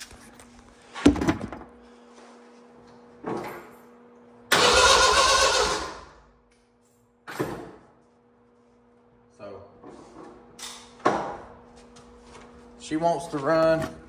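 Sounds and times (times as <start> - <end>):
starter cranking engine: 4.5 - 6.0.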